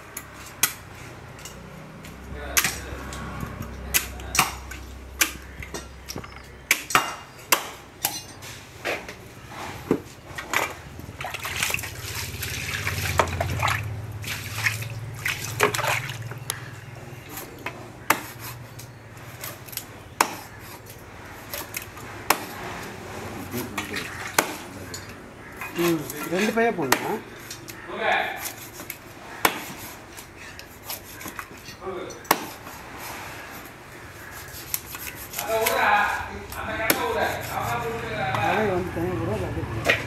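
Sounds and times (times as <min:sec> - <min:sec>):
knife chopping fish on wood: 0:03.9 - 0:05.9, 0:17.3 - 0:18.6, 0:19.4 - 0:22.7, 0:23.9 - 0:24.8, 0:25.5 - 0:27.8, 0:28.4 - 0:31.6, 0:32.3 - 0:32.8, 0:34.1 - 0:38.4
knife scraping: 0:17.2 - 0:21.8, 0:22.4 - 0:38.5.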